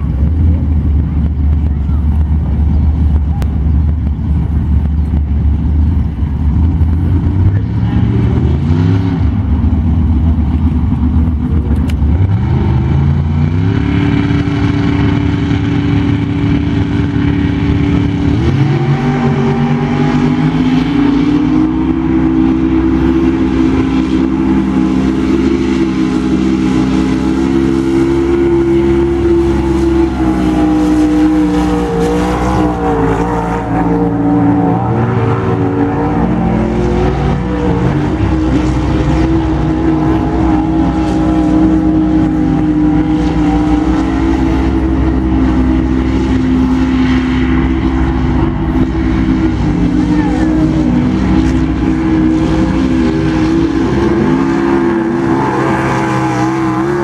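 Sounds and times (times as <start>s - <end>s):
heavy engines running loudly: 0.0s - 57.0s
wheel loader moving: 0.0s - 57.0s
swamp buggy launching through water: 12.4s - 57.0s.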